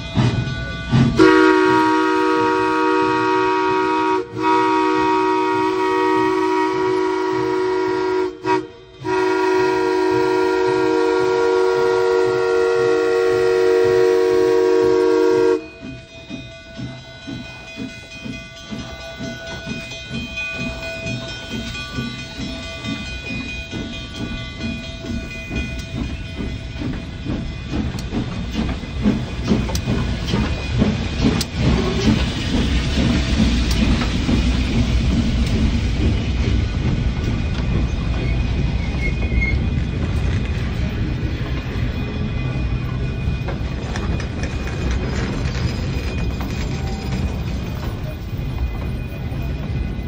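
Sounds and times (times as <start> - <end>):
steam locomotive exhaust chuffs: 0.0 - 50.0
train wheel clacks: 0.0 - 50.0
steam hissing: 0.3 - 50.0
steam whistle blasts: 1.2 - 15.8.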